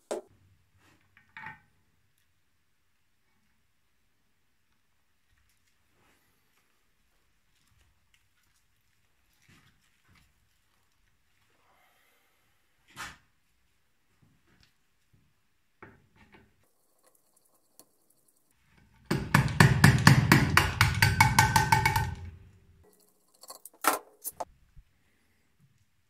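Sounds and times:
hammer tapping on metal: 19.0 - 22.4.

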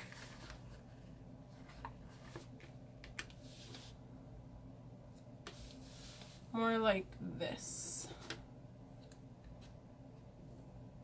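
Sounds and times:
soft paper rustling: 0.0 - 4.0.

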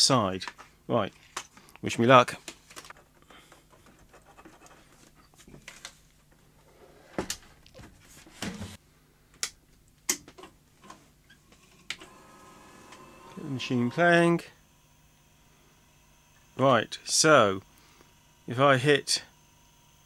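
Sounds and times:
faint steady hum: 8.6 - 20.0.

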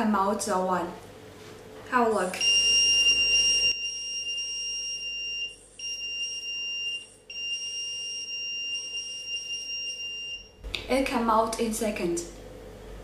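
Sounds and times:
high-pitched buzzer tone: 2.2 - 10.6.

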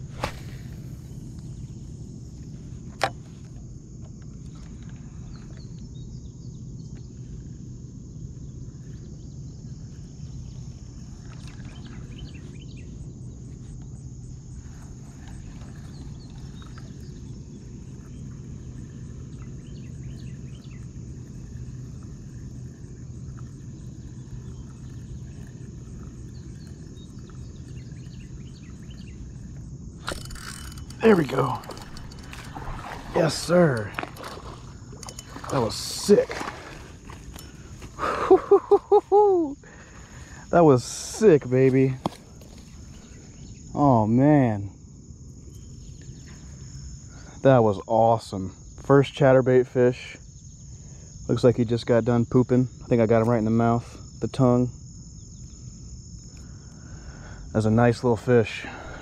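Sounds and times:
low steady rumble: 0.0 - 47.6
high insect drone: 0.0 - 59.0
faint chirps: 4.3 - 36.2, 36.8 - 44.7.

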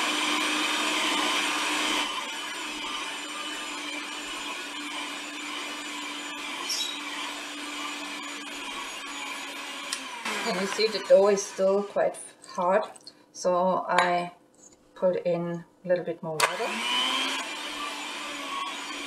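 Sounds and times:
stand mixer motor whirring: 0.0 - 11.6, 16.4 - 19.0.

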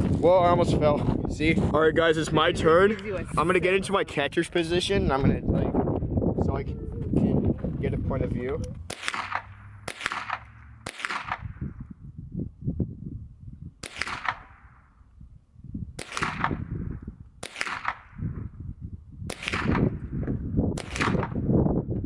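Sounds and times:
rifle shots with echo: 8.8 - 11.8, 13.8 - 15.0, 16.0 - 16.7, 17.4 - 18.3, 19.3 - 20.0, 20.8 - 21.4.

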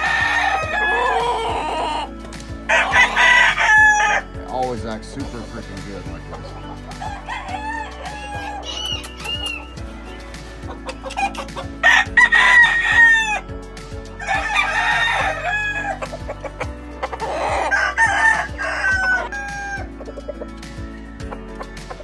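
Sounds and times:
chickens clucking: 0.0 - 4.0, 6.1 - 11.8, 16.0 - 22.0
roosters crowing: 0.0 - 4.4, 6.7 - 13.5, 14.1 - 20.5.

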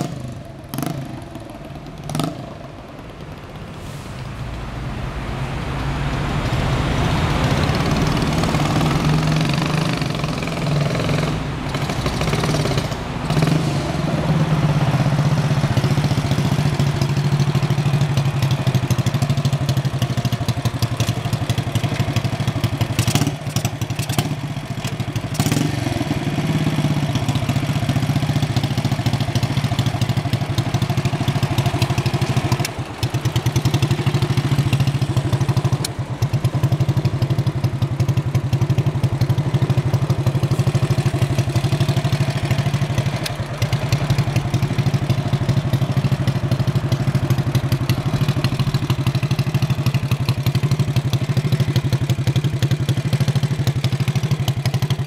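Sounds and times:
motorcycle engine idling: 0.0 - 3.8, 6.8 - 55.0.

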